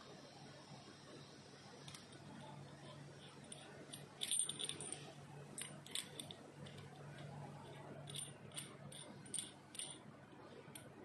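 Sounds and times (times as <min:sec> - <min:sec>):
faint low hum: 0:00.0 - 0:11.0
metallic clicks of threaded fitting: 0:08.1 - 0:10.0.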